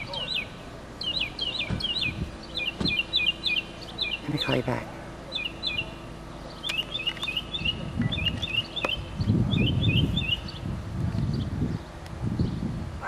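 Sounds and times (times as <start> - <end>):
songbird chirping: 0.0 - 12.8
low rumbling noise: 0.0 - 13.0
sharp clicks: 6.6 - 9.0.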